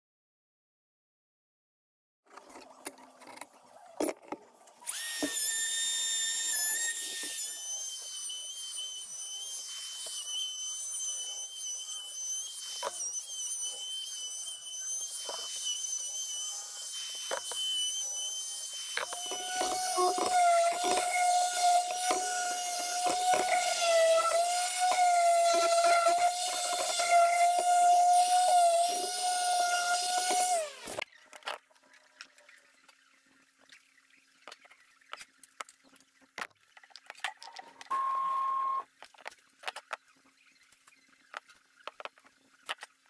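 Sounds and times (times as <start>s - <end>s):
orbital sander whine: 4.9s - 31.0s
lower motor whine: 19.0s - 31.0s.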